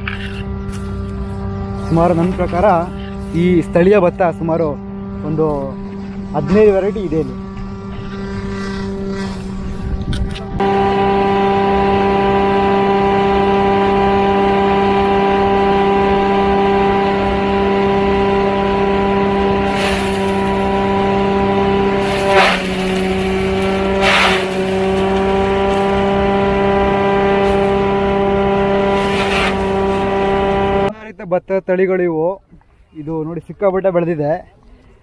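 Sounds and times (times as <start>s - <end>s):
shredder chopping sugarcane: 10.6s - 30.9s.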